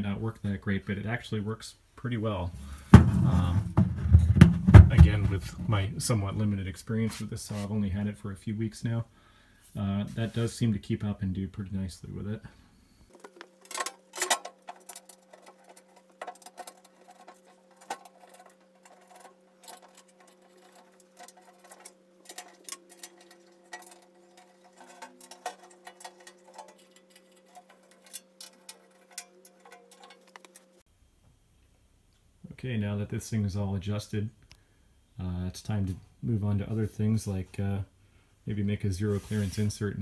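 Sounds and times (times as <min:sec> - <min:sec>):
faint steady hum: 0:00.0 - 0:40.0
metal panel clicks and taps: 0:13.3 - 0:30.6.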